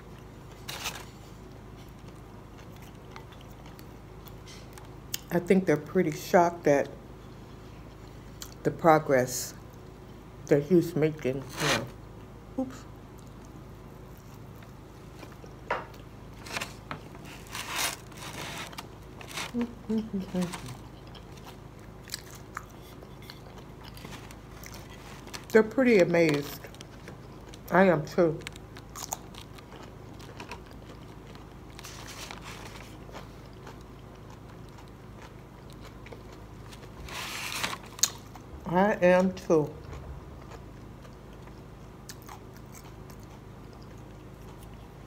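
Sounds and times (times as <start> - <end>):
person chewing fried food: 0.0 - 5.3, 13.1 - 25.6, 26.6 - 27.7, 28.4 - 38.5, 39.8 - 45.0
low room hum: 0.0 - 45.0.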